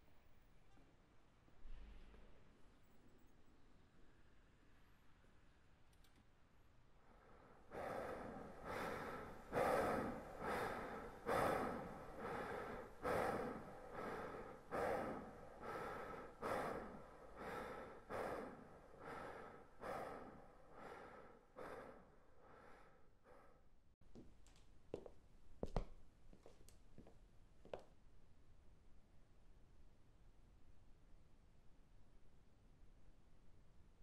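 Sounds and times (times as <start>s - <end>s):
man breathing hard: 7.0s - 23.8s.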